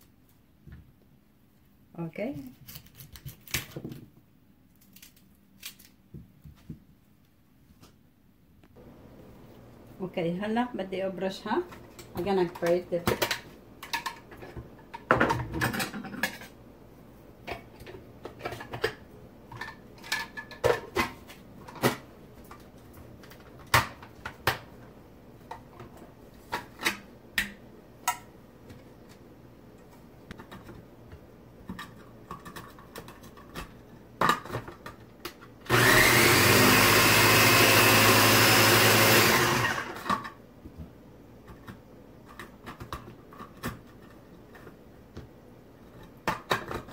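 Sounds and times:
food processor motor running: 35.7 - 40.1.

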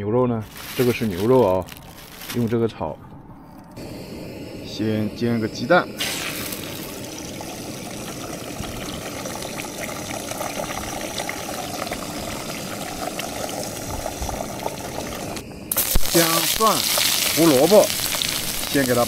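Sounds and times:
egg sizzling in hot oil: 5.5 - 19.0.

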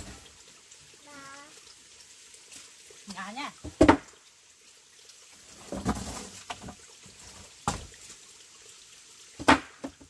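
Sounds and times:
wooden knock: 3.6 - 4.1
wooden plank thud: 3.6 - 4.1.

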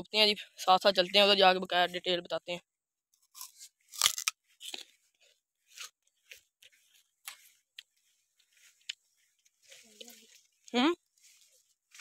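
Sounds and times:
chewing crunches: 3.2 - 10.6
sugarcane rind crunching tear: 3.3 - 4.9.

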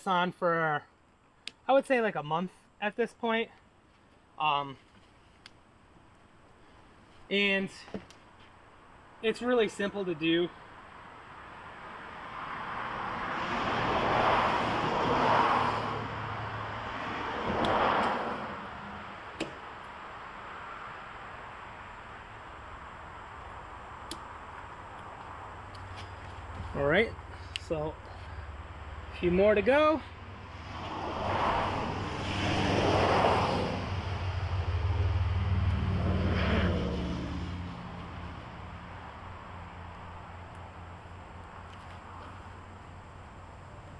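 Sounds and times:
car passing: 10.5 - 43.9.

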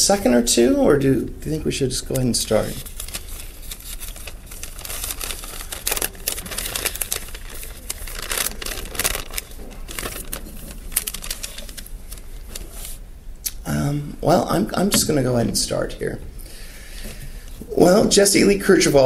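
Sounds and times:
low mains hum: 0.0 - 19.0
paper rustling and crinkling: 2.1 - 13.0.

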